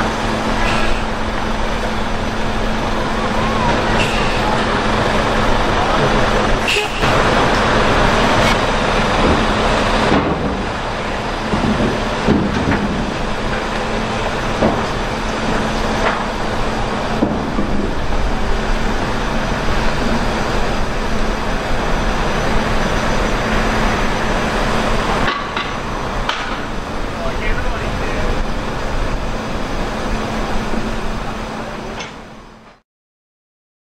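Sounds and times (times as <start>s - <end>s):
diesel engine running: 0.0s - 32.8s.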